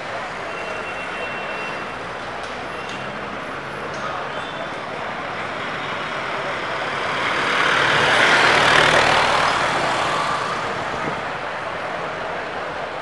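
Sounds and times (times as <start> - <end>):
city street traffic: 0.0 - 13.0
vehicle passing: 6.4 - 11.3.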